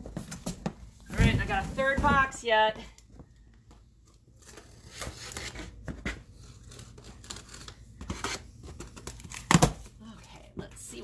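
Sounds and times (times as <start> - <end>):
knife cutting packing tape: 6.4 - 9.6.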